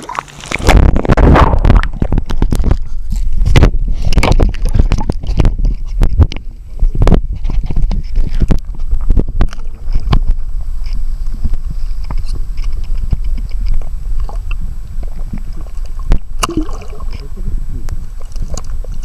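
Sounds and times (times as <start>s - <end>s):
underwater water sloshing: 0.0s - 19.0s.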